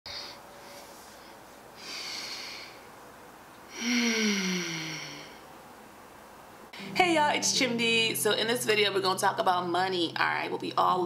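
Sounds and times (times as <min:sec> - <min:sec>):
woman breathing in: 0:00.1 - 0:02.9, 0:03.7 - 0:05.5
woman sighing: 0:03.7 - 0:05.4.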